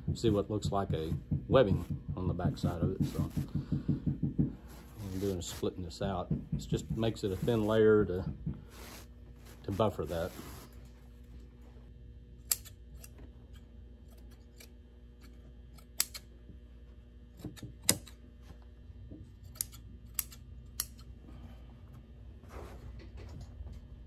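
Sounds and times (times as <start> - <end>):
soft handling of batting: 4.5 - 12.0
shears snipping: 12.4 - 16.3, 19.4 - 21.1.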